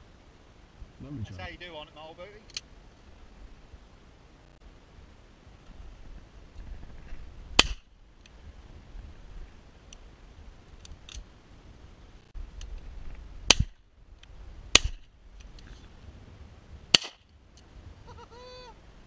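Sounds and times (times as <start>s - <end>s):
shotgun shots: 7.6s - 7.8s, 14.7s - 15.0s, 16.9s - 17.2s.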